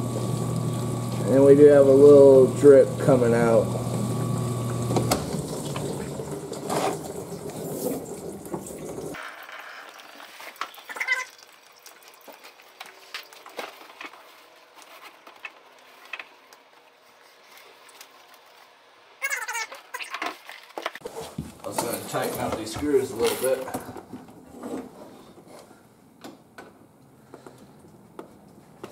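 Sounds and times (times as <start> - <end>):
dishwasher water rushing: 0.0 - 12.8.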